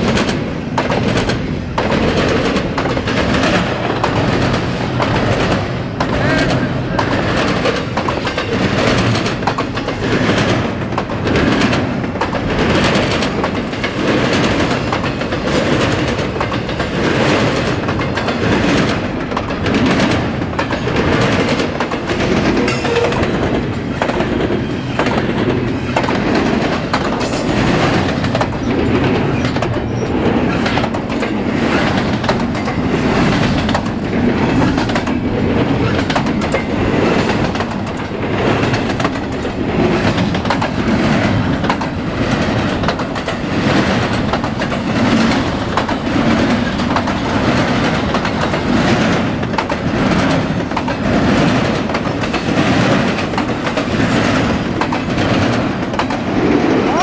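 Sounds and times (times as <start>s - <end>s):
freight train rumbling past: 0.0s - 57.0s
wheels clicking over rail joints: 0.0s - 57.0s.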